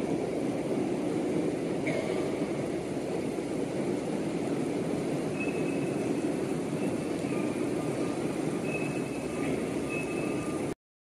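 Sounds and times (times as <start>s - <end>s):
faint high beeps: 5.3s - 6.1s, 6.8s - 10.8s.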